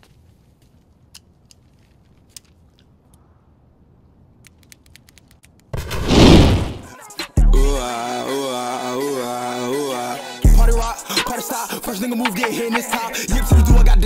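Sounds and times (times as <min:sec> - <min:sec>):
faint clicks: 0:04.4 - 0:05.7
whoosh of noise: 0:05.8 - 0:06.9.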